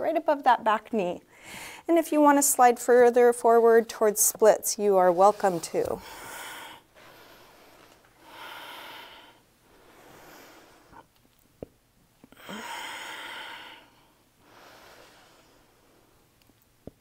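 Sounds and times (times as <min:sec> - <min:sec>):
woman breathing slowly: 0:01.3 - 0:01.9, 0:05.1 - 0:11.1, 0:12.3 - 0:16.3.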